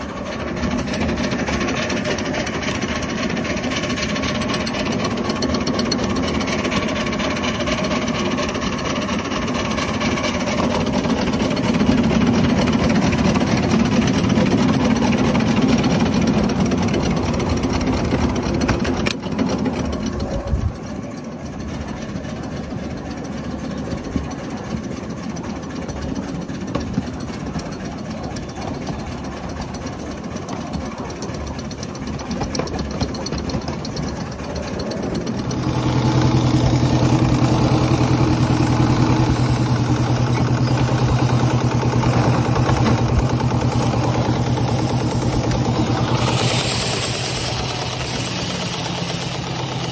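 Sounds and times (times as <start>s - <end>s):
miniature steam locomotive running: 0.0s - 49.9s.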